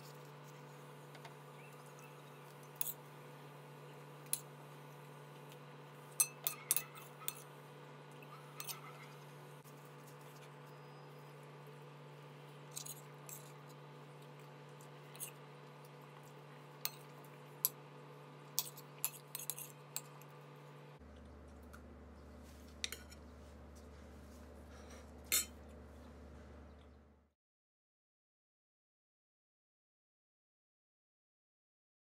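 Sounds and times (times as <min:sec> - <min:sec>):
metal spoon clinking on plate: 0:06.2 - 0:07.4
low hum: 0:19.8 - 0:27.3.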